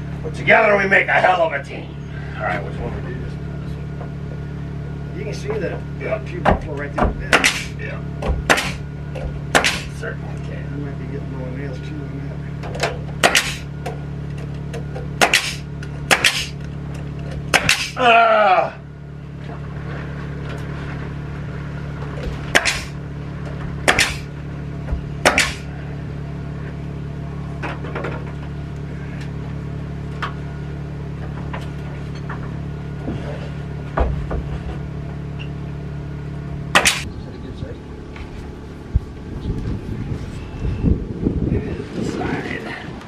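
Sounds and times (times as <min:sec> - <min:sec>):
low hum: 0:00.0 - 0:43.0
nail gun shots: 0:07.3 - 0:07.8, 0:08.4 - 0:08.8, 0:09.5 - 0:10.0, 0:13.2 - 0:13.7, 0:15.2 - 0:16.6, 0:17.5 - 0:18.0, 0:22.5 - 0:23.0, 0:23.8 - 0:24.3, 0:25.2 - 0:25.7, 0:36.7 - 0:37.1.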